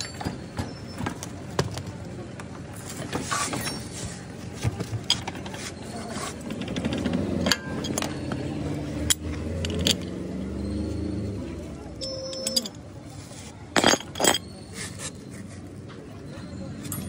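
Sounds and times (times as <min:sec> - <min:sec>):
metal tools clinking and scraping: 0:00.0 - 0:02.0, 0:02.6 - 0:17.0.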